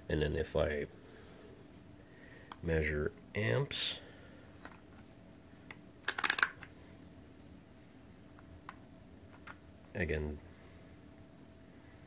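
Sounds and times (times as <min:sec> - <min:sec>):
rotary dial plastic clicks: 0:06.1 - 0:06.6.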